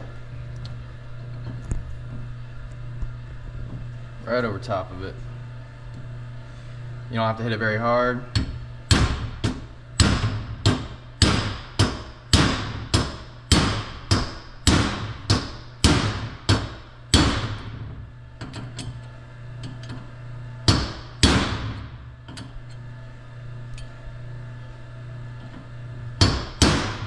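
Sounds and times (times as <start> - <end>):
hammer striking steel punch: 8.3 - 17.7, 20.7 - 21.9, 26.2 - 27.0.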